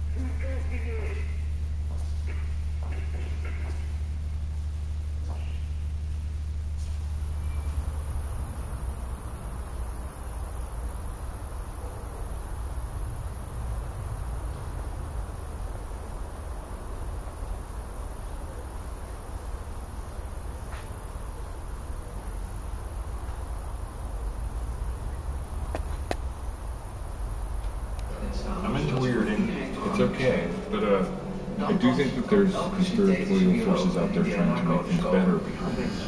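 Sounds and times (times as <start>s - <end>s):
steady low rumble: 0.0s - 36.0s
crickets trilling: 7.3s - 30.2s.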